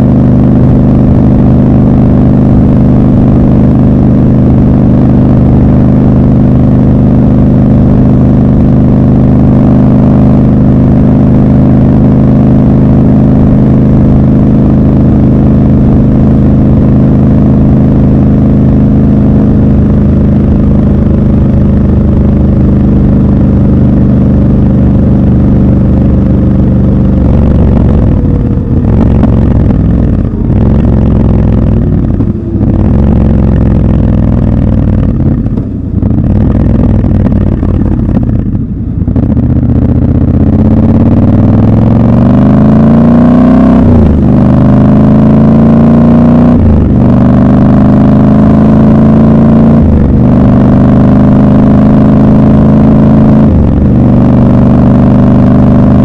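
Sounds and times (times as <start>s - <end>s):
motorcycle engine accelerating: 0.0s - 56.0s
gear changes: 12.9s - 42.9s.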